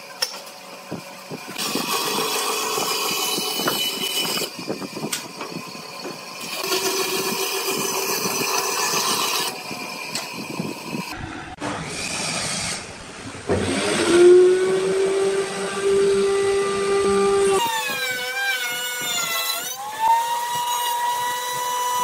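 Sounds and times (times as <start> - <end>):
router high-pitched whine: 0.6 - 12.8
bandsaw cutting wood: 1.5 - 11.1, 13.6 - 22.0.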